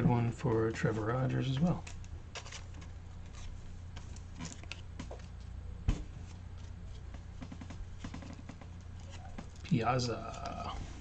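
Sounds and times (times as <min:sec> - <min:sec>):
cards rustling and clicking: 0:01.4 - 0:05.6, 0:06.2 - 0:10.7.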